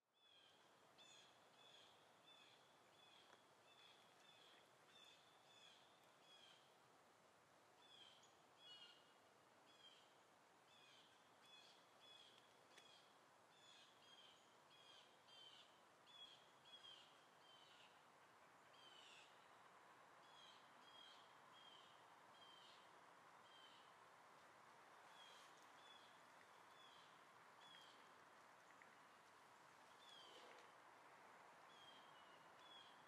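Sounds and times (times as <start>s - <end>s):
steady background hiss: 0.2s - 33.0s
faint bird calls: 25.1s - 30.8s.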